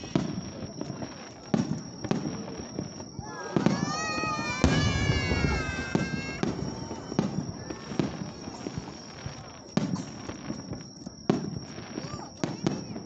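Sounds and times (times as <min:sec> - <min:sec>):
fireworks bursting: 0:00.0 - 0:13.0
falling whistle-like tone: 0:02.3 - 0:09.4.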